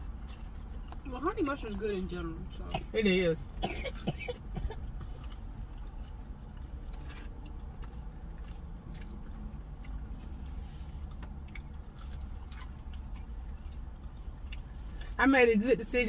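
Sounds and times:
low steady car cabin hum: 0.0 - 16.0
wet chewing mouth clicks: 4.9 - 15.2.

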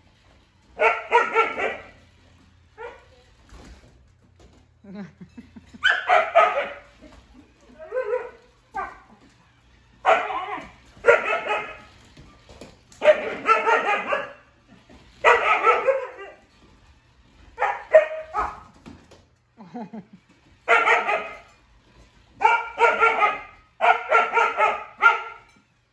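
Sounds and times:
dogs barking: 0.8 - 2.0, 5.8 - 7.0, 7.8 - 9.2, 10.0 - 12.0, 13.0 - 14.6, 15.2 - 16.5, 17.6 - 18.7, 20.6 - 21.6, 22.4 - 25.6.

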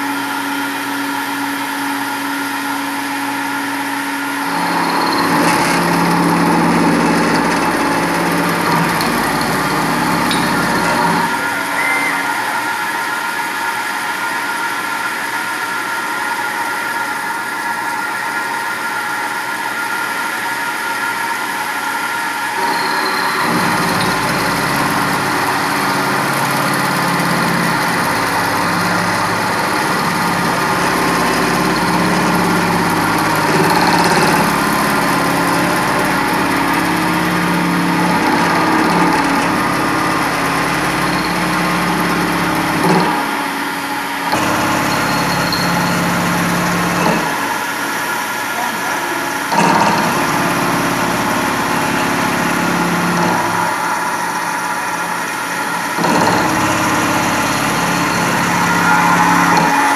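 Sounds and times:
milling machine cutting metal: 0.1 - 59.9
thin high whine: 4.6 - 15.1, 22.1 - 33.5, 43.8 - 47.7, 56.4 - 59.9.

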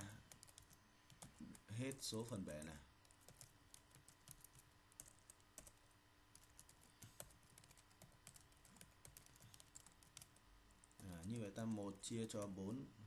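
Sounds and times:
computer keyboard typing: 0.0 - 2.4, 3.0 - 12.6
faint steady hum: 0.0 - 13.0.

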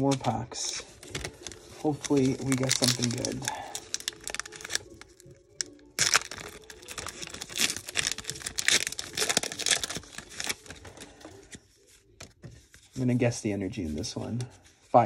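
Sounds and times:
cards rustling: 0.0 - 15.0
foil wrapper tearing and crinkling: 1.0 - 11.6.

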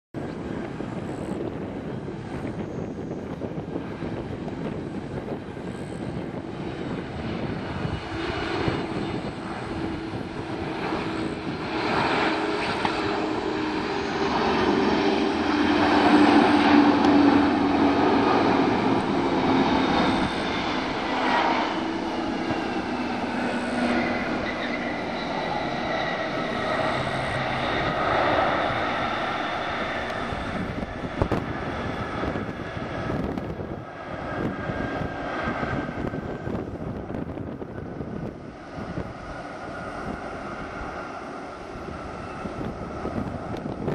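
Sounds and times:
jet engines of landing airliner: 0.2 - 43.9.

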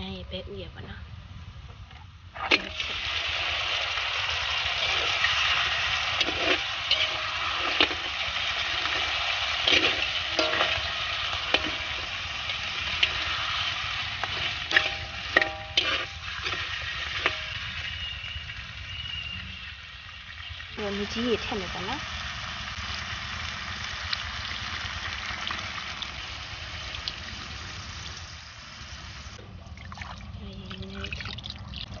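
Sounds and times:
food sizzling in hot oil: 2.4 - 29.4
spatula scraping a wok: 4.2 - 18.1.

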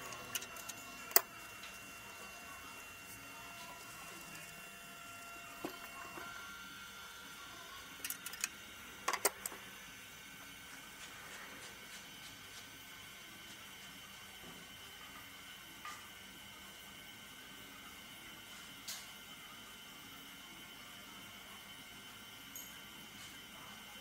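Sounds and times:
faint steady hum: 0.0 - 24.0
tools clicking and knocking: 8.0 - 9.6.

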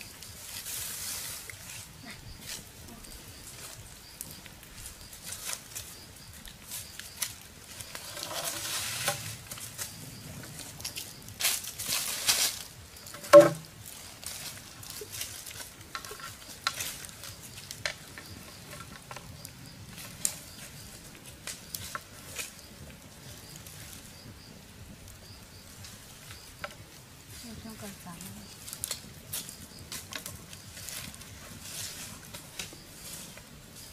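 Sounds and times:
campfire crackling and popping: 0.0 - 33.9
machete knocking bamboo tube: 13.2 - 13.7.

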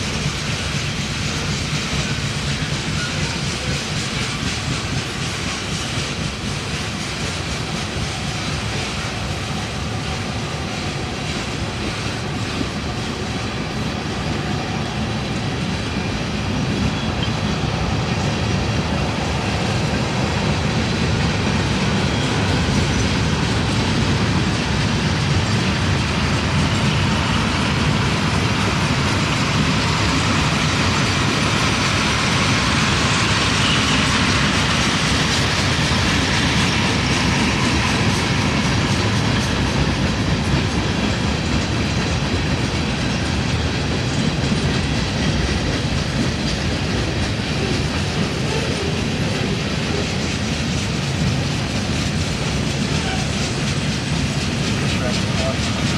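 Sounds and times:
train wheels rumbling on rails: 0.0 - 55.9.

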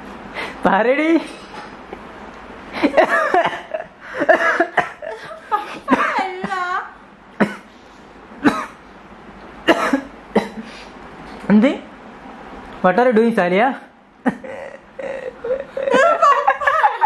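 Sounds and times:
woman laughing: 2.8 - 6.6, 14.2 - 17.0
woman coughing: 2.9 - 7.7, 8.4 - 8.8, 9.7 - 10.7.

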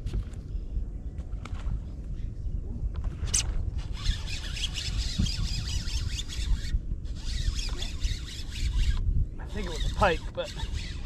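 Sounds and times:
fishing reel whirring and clicking: 3.8 - 11.0.

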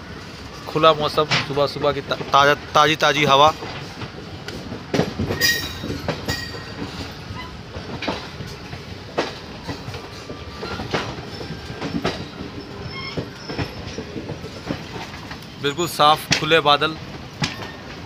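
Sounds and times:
train rumbling: 0.0 - 18.0
wheels clattering over rail joints: 0.2 - 18.0
high wheel squeals: 10.2 - 14.2.

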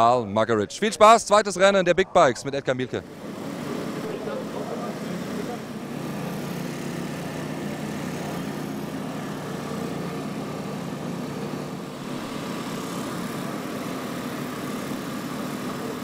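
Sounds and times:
motorcycle engines idling: 3.0 - 16.0.

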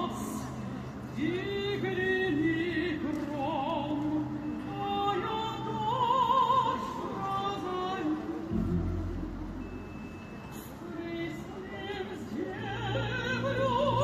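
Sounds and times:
opera singing with orchestra: 0.0 - 14.0.

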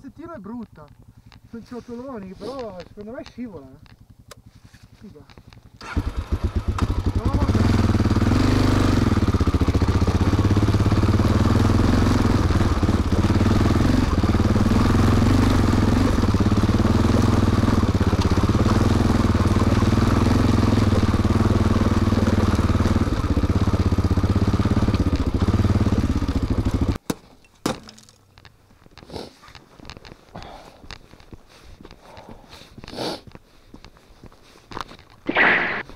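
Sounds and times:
motorcycle engine running: 0.3 - 27.0.

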